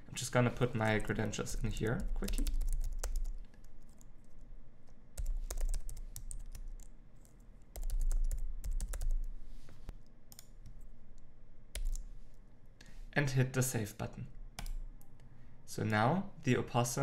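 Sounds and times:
typing on a keyboard: 2.0 - 4.0, 5.2 - 6.9, 7.7 - 9.3.

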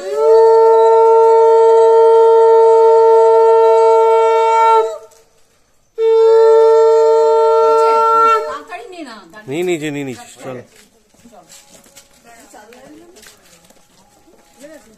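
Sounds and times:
conch shell blasts: 0.0 - 5.1, 6.0 - 8.7.

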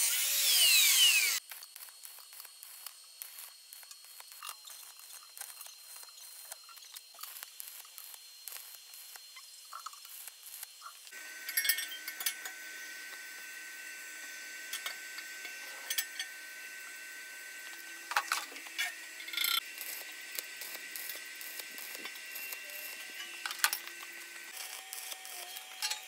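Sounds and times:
arc welding crackling hiss: 0.0 - 26.0
thin high whine: 10.8 - 26.0.

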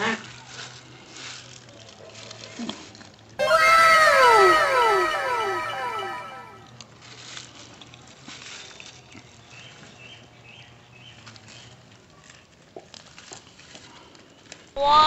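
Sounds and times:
faint high chirps: 3.4 - 6.6.

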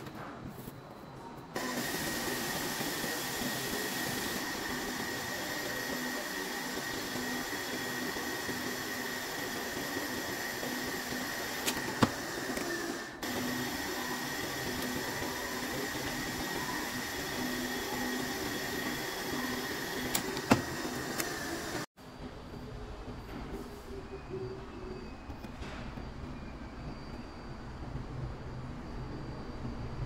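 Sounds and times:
milling machine cutting metal: 1.6 - 21.9.

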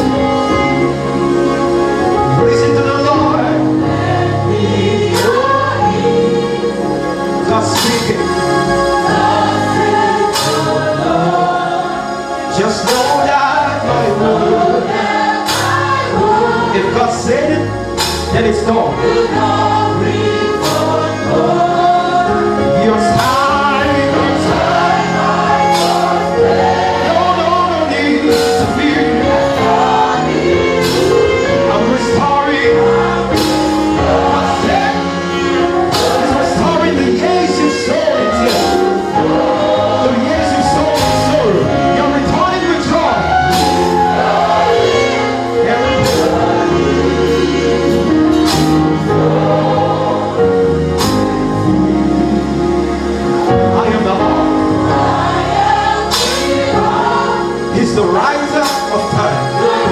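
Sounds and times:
choir singing: 0.0 - 59.9
held bass notes: 0.0 - 59.9
percussion hits: 5.1 - 5.8, 7.7 - 11.7, 12.8 - 13.6, 14.6 - 16.4, 17.9 - 18.6, 19.4 - 21.9, 23.1 - 27.1, 28.2 - 31.6, 33.0 - 42.5, 43.2 - 49.9, 50.9 - 52.0, 55.2 - 57.2
man singing into microphone: 12.5 - 14.8, 22.6 - 26.3, 27.0 - 33.0, 34.4 - 48.8, 57.7 - 59.9.

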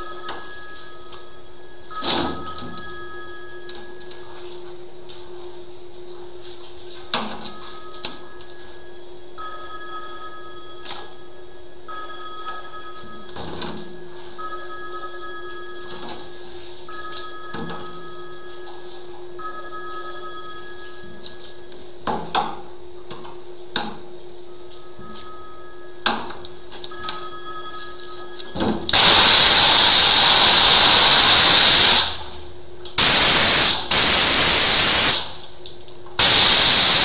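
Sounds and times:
two-tone phone ringtone: 7.6 - 21.6, 26.8 - 28.8.

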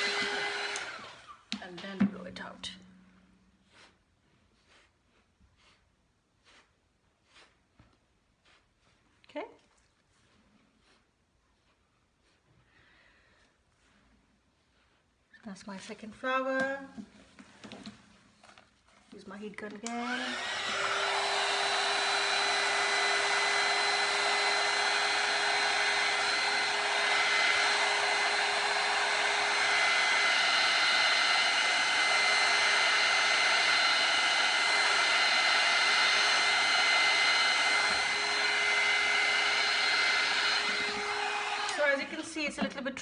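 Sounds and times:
heat gun fan humming: 0.0 - 3.0, 19.6 - 42.7.

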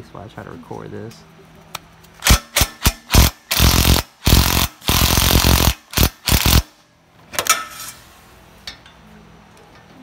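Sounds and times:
impact wrench hammering: 2.2 - 6.8.

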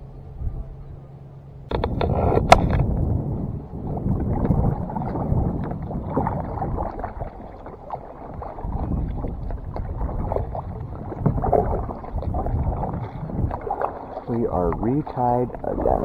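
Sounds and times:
paddle splashing in water: 1.7 - 16.0.

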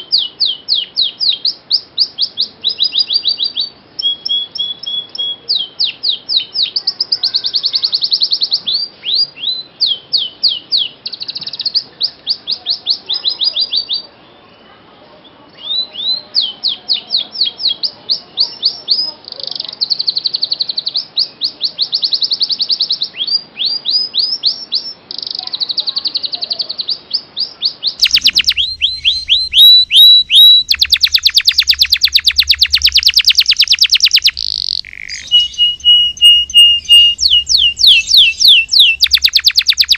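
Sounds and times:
canary singing trills: 0.0 - 14.6, 15.5 - 39.9
second louder canary song: 26.8 - 39.9
low hum: 28.0 - 31.4.

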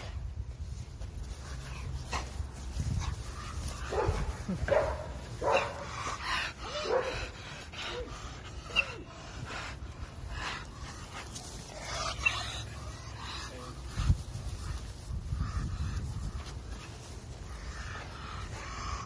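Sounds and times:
dog barking and yipping: 3.9 - 8.1.

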